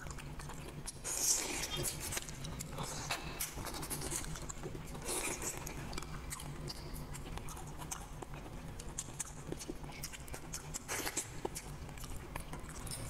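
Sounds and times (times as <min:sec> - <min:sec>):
wet chewing and lip smacks: 0:00.0 - 0:13.0.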